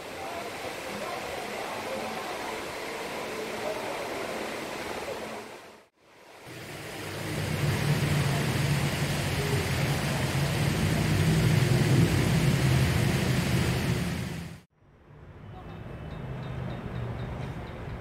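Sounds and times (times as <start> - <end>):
fountain water splashing: 0.0 - 14.7
vehicle engine humming: 6.5 - 14.6
street traffic: 6.5 - 18.0.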